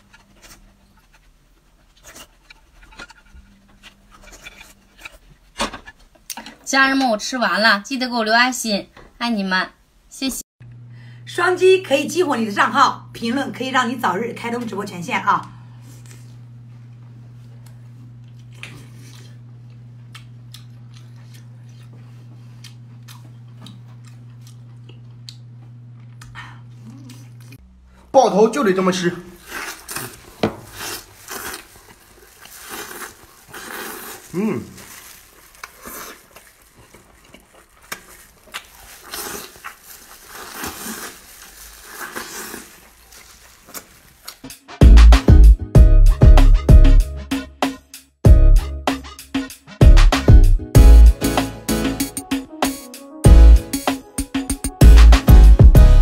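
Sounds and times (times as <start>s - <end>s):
wet chewing and smacking: 18.2s - 27.6s, 29.4s - 44.7s.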